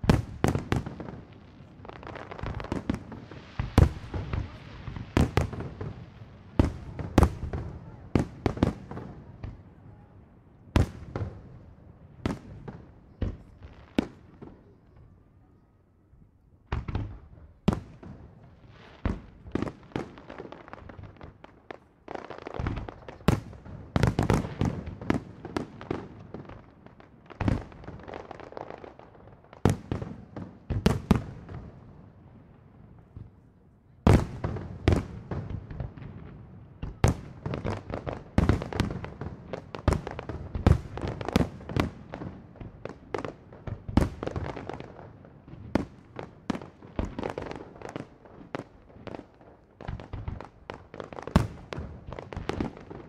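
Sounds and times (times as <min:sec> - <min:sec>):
fireworks bursting: 0:00.0 - 0:09.8, 0:16.7 - 0:32.0, 0:34.0 - 0:53.0.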